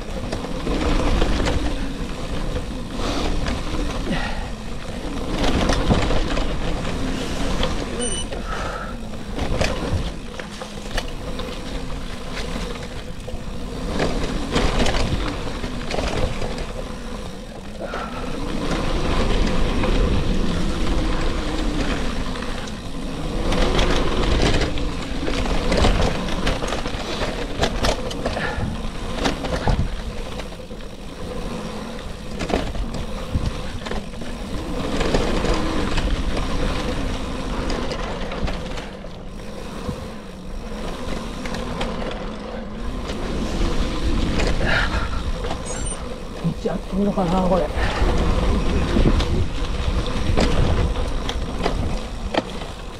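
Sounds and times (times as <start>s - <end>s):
bicycle tyres crunching on gravel: 0.0s - 52.9s
bike rattling over stones: 0.0s - 52.9s
wind on microphone: 47.7s - 52.5s.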